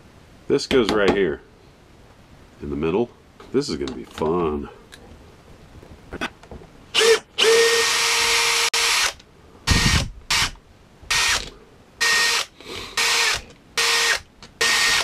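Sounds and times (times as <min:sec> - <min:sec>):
cordless drill whining: 0:07.0 - 0:15.0.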